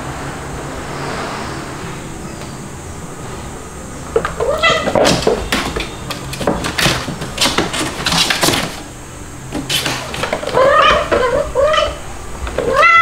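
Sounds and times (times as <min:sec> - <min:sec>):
cats scuffling and scratching: 0:04.2 - 0:11.5
kitten mewing: 0:10.5 - 0:12.0, 0:12.6 - 0:13.0.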